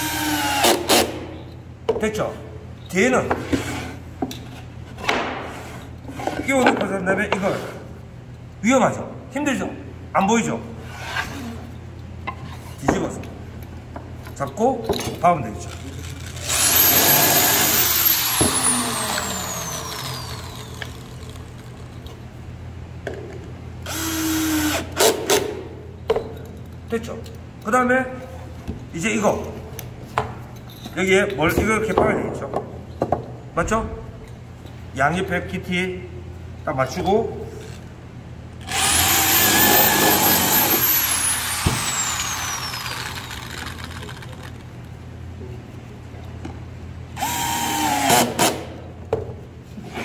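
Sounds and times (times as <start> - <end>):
electric drill into wood: 0.0 - 1.1, 16.4 - 21.5, 23.9 - 25.2, 38.6 - 44.5, 47.2 - 48.7
drill motor winding down whine: 16.4 - 21.5, 38.7 - 44.4, 47.2 - 48.2
cordless drill hum: 16.4 - 21.6, 23.8 - 24.9, 38.6 - 44.6, 47.2 - 48.3.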